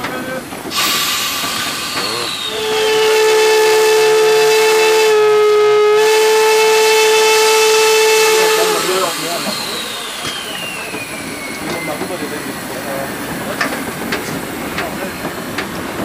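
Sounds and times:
steam whistle blast: 0.8 - 12.4.

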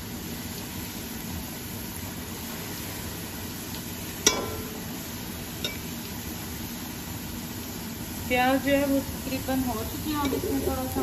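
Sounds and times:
onions frying in oil: 0.0 - 11.0
metal spoon clanking on pot: 4.2 - 4.8, 5.6 - 5.9.

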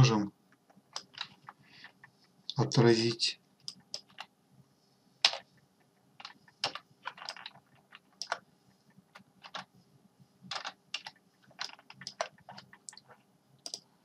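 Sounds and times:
computer keyboard keys clicking: 0.9 - 1.6, 3.6 - 4.3, 6.2 - 8.4, 9.1 - 9.7, 10.5 - 13.8.

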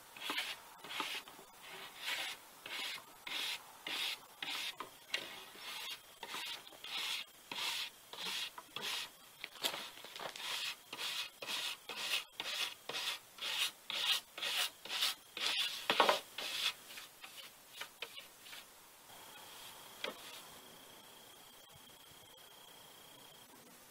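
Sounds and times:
brush scrubbing a charred board: 0.2 - 9.1, 10.2 - 18.6.

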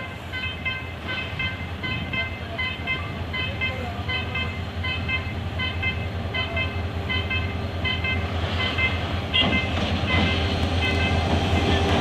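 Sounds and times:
level crossing warning alarm: 0.0 - 11.4
diesel locomotive rumble: 0.0 - 12.0.

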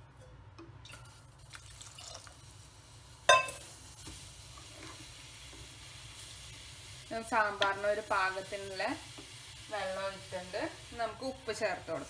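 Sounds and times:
water pouring into a pot: 0.9 - 7.1.

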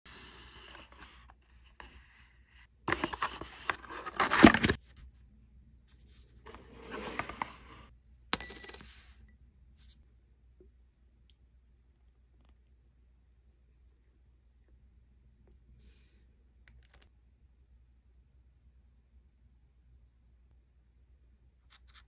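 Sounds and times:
paper rustling and tearing: 2.9 - 4.8.

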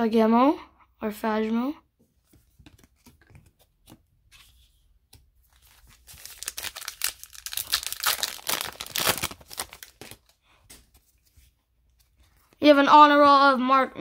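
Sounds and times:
foil wrapper tearing and crinkling: 5.6 - 10.4.

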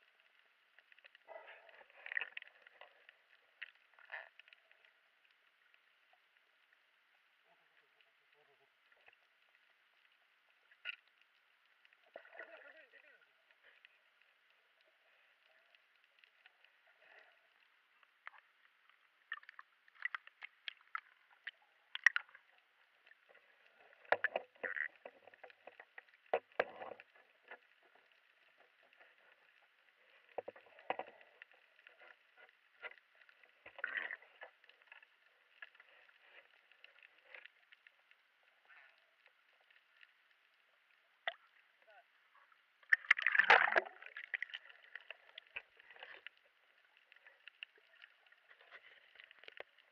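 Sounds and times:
faint underwater hiss: 0.0 - 49.9
rushes of water: 42.8 - 49.9.

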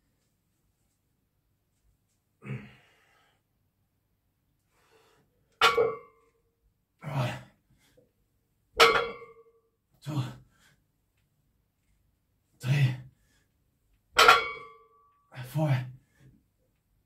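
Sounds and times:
metallic ring of weight plates: 5.6 - 6.3, 8.8 - 9.5, 14.2 - 15.1.

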